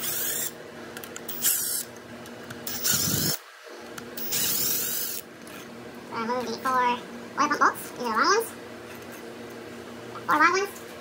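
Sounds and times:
cordless impact tool whine: 0.0s - 0.6s, 1.3s - 1.9s, 2.6s - 3.4s, 4.2s - 5.3s.

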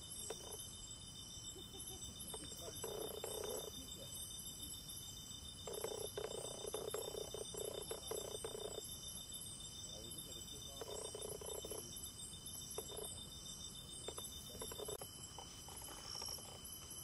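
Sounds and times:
insects high-pitched pulsing trill: 0.0s - 17.0s
lower rattling insect call: 0.0s - 17.0s.

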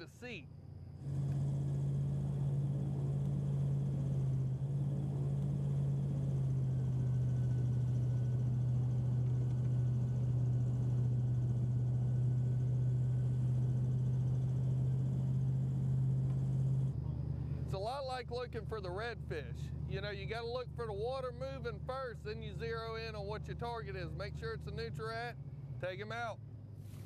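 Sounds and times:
airboat engine droning: 0.0s - 27.0s.

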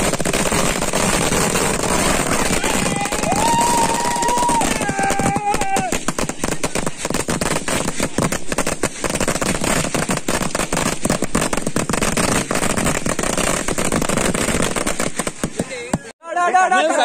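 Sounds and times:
firecrackers banging and crackling: 0.0s - 16.2s.

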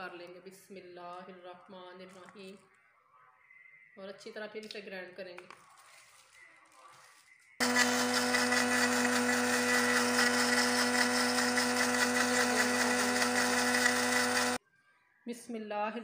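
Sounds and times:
electric blender running: 7.6s - 14.6s.

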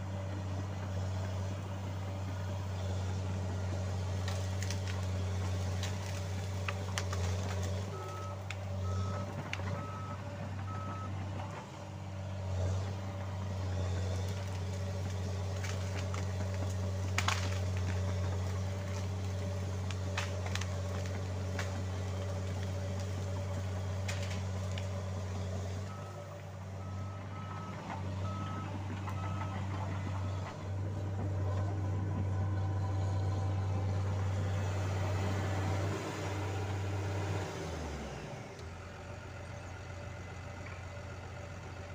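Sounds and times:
dozer diesel engine running: 0.0s - 41.9s.

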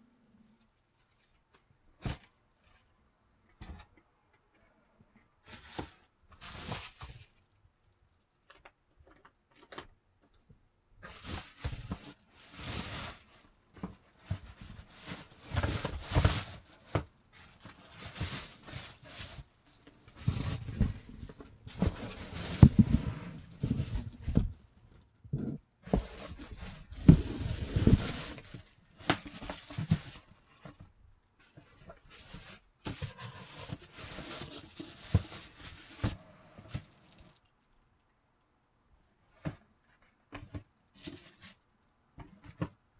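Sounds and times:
bubble wrap crinkling: 5.5s - 8.6s, 11.1s - 13.6s, 14.2s - 24.8s, 26.2s - 30.3s, 36.7s - 37.5s
handling noises: 11.0s - 37.4s.

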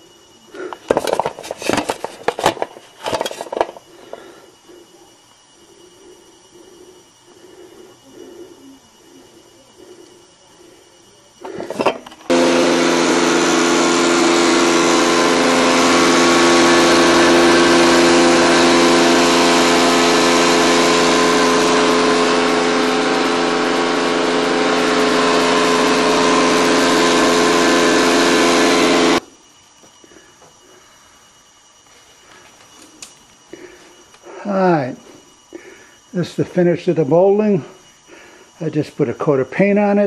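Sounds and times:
planer machine running: 0.6s - 4.8s, 7.4s - 29.2s.

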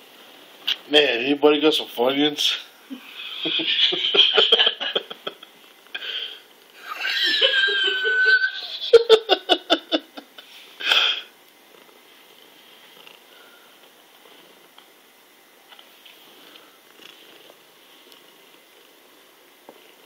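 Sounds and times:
man laughing: 2.9s - 5.5s, 6.8s - 10.5s.

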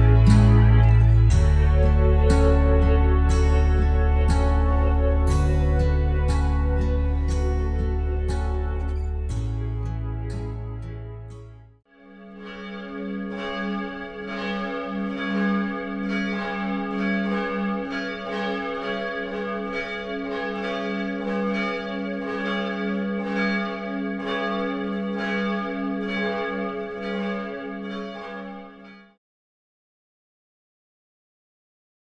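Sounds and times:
church bell ringing: 0.0s - 10.2s, 12.0s - 29.2s
deep sustained hum: 0.0s - 11.6s.

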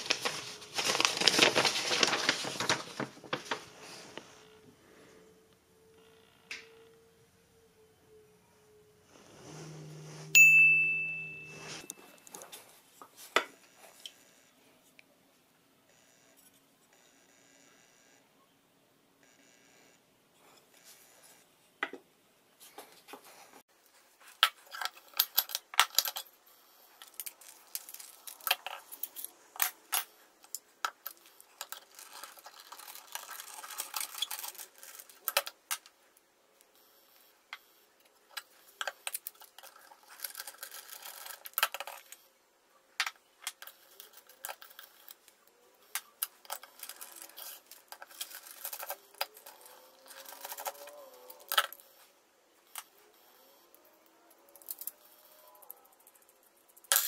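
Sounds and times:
metal parts clinking on stone: 56.8s - 57.0s.

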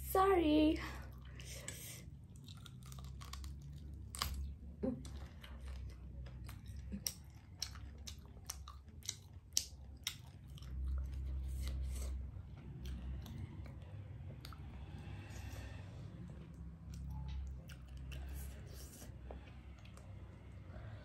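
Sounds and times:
fried chicken crunching: 2.3s - 4.5s, 5.2s - 11.0s.

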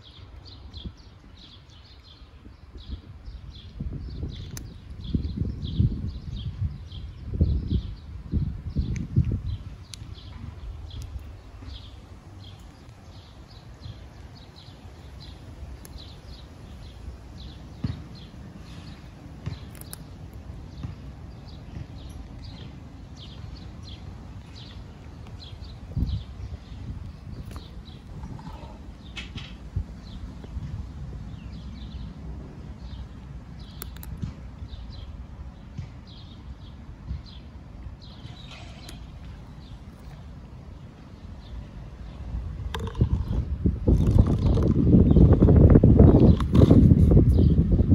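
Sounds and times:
small birds chirping: 0.0s - 47.9s
sharp clicks: 19.6s - 20.4s, 33.6s - 34.2s.

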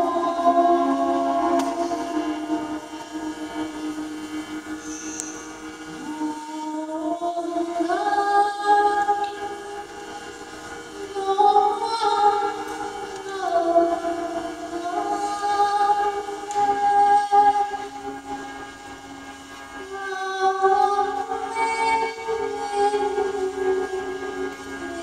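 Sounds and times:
woman singing: 0.0s - 4.5s, 6.0s - 10.1s, 11.0s - 18.5s, 19.8s - 25.0s
hurdy-gurdy drone: 0.0s - 25.0s.

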